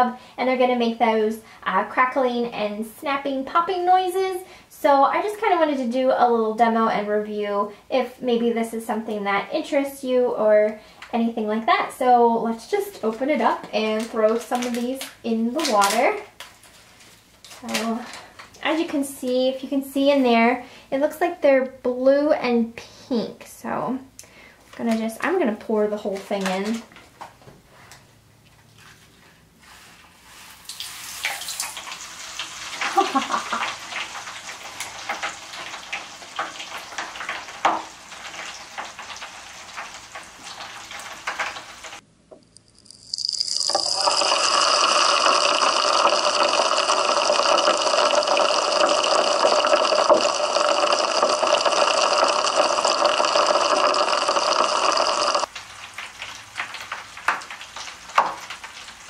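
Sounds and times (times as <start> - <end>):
granules crackling and popping in water: 12.6 - 19.6, 24.7 - 27.2, 30.6 - 59.0
dense fizzing underwater: 30.6 - 42.0, 43.1 - 59.0.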